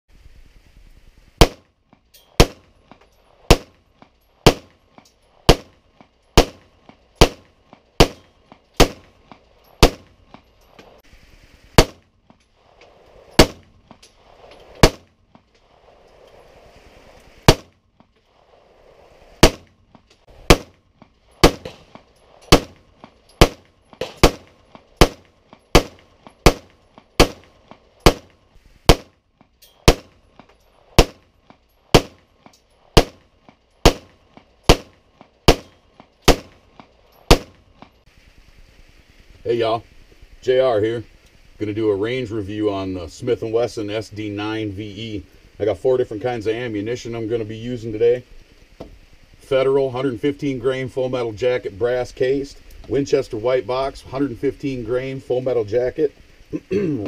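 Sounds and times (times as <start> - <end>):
pistol shots: 1.4 - 1.7, 2.4 - 2.7, 3.5 - 3.8, 4.4 - 4.8, 5.4 - 5.8, 6.4 - 10.2, 11.8 - 12.1, 13.4 - 13.7, 14.8 - 15.2, 17.4 - 17.8, 19.4 - 19.8, 20.4 - 20.8, 21.4 - 29.2, 29.8 - 30.2, 31.0 - 31.3, 31.9 - 32.3, 32.9 - 37.6.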